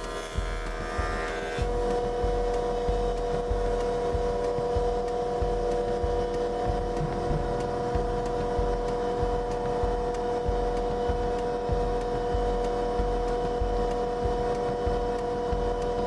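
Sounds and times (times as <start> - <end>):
jointer planer machine whine: 0.0 - 6.6.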